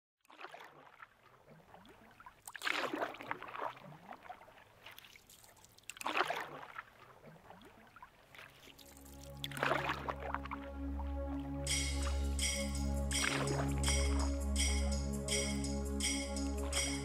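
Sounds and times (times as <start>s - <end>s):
oar swishing through water: 0.2s - 11.5s
faint water sounds: 0.2s - 12.2s.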